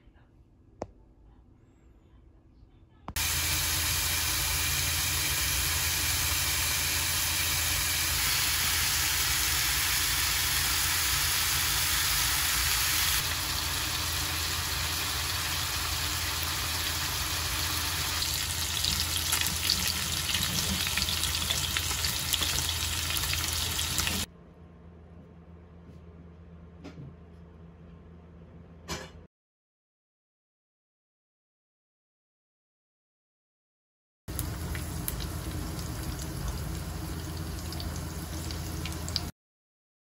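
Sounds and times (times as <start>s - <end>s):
faint low hum: 0.0s - 3.2s
meat sizzling in a frying pan: 3.2s - 24.3s, 34.3s - 39.3s.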